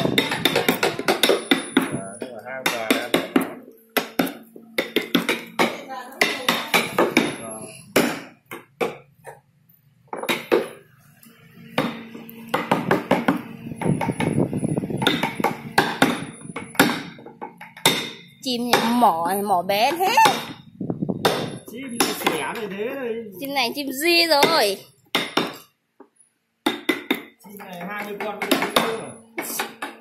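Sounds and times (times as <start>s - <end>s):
mallet striking chisel into wood: 0.0s - 2.0s, 2.6s - 7.4s, 8.0s - 9.0s, 10.2s - 10.8s, 11.8s - 14.3s, 15.0s - 19.1s, 20.2s - 20.6s, 21.2s - 22.5s, 24.4s - 25.6s, 26.6s - 27.4s, 28.0s - 29.0s.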